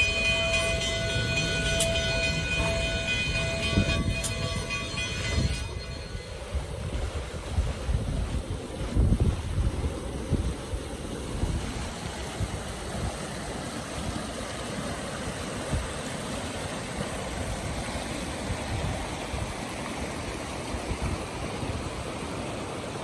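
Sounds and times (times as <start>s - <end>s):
wind buffeting microphone: 0.0s - 13.3s
creek rushing over rocks: 0.0s - 23.0s.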